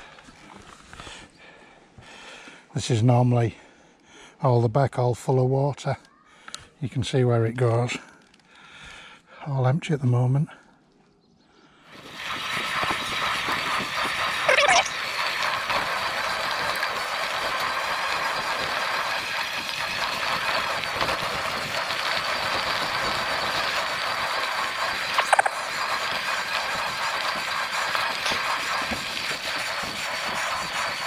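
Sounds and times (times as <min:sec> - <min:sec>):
high squeak: 0:14.4 - 0:15.2.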